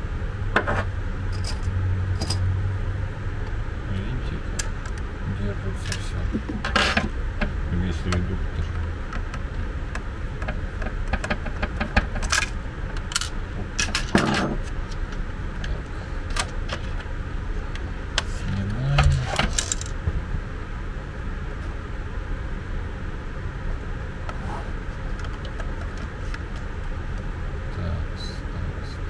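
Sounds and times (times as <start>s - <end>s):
steady low hum: 0.0s - 29.0s
plastic parts clicking and rattling: 8.1s - 15.0s, 18.6s - 20.0s.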